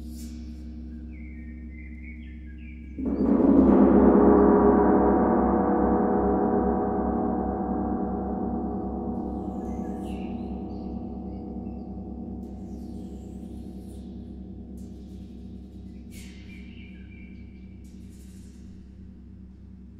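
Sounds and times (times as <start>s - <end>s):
low ringing tones: 1.6s - 18.9s
large gong struck: 3.0s - 12.4s.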